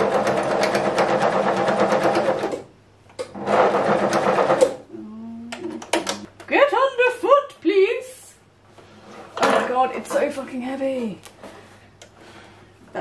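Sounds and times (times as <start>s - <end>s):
electric sewing machine stitching: 0.0s - 2.7s, 3.3s - 4.8s.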